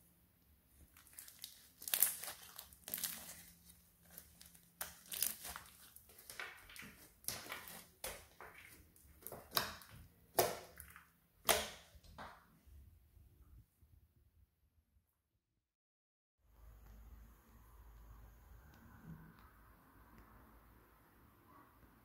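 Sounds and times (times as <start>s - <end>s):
sticky slime squelches and crackles: 0.7s - 12.4s
slime popping: 1.0s - 3.5s, 4.1s - 12.0s.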